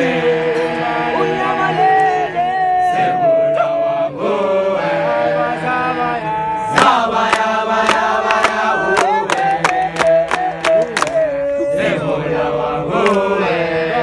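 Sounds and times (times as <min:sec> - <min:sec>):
crowd singing in unison: 0:00.0 - 0:14.0
sharp hand claps: 0:06.7 - 0:11.2, 0:13.0 - 0:13.3.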